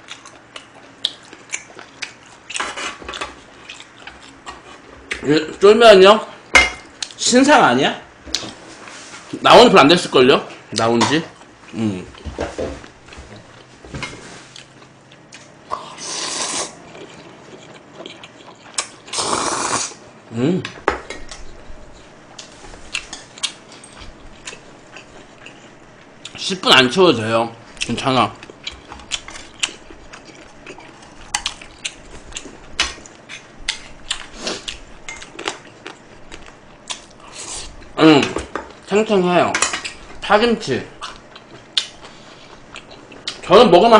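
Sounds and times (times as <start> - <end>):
close-up chewing: 3.4 - 4.8, 16.6 - 19.2, 27.8 - 37.9
person slurping noodles: 15.7 - 16.8, 19.1 - 20.0.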